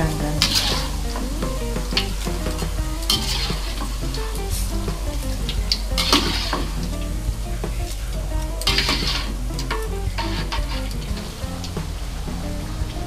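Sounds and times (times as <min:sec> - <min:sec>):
hot oil sizzling: 0:00.0 - 0:13.0
soft instrumental music: 0:00.0 - 0:13.0
metal strainer scraping wok: 0:00.4 - 0:00.9, 0:03.1 - 0:03.9, 0:06.0 - 0:06.8.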